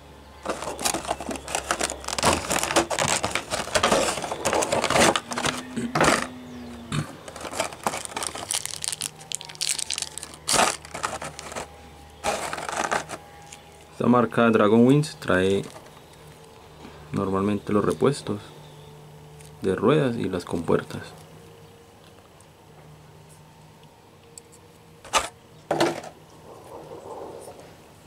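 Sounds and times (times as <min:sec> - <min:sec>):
plastic packaging crinkling: 0:00.4 - 0:06.4, 0:07.2 - 0:13.9.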